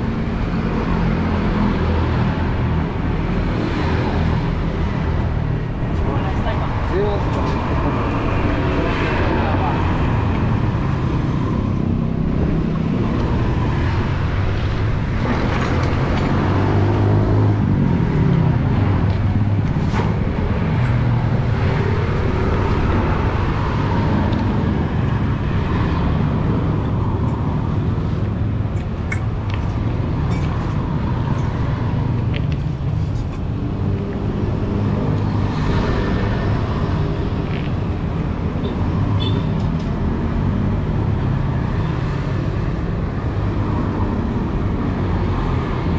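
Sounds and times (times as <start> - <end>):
road traffic passing close by: 0.0 - 45.9.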